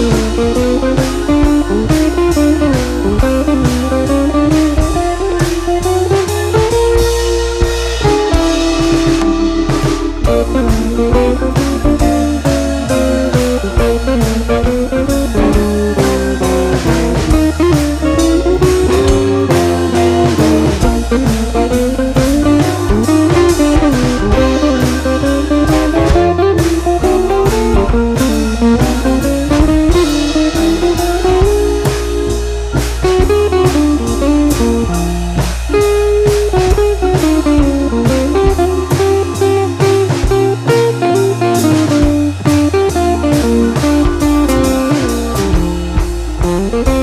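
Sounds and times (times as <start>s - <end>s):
blues guitar tune: 0.0s - 47.0s
steady drum beat: 0.0s - 47.0s.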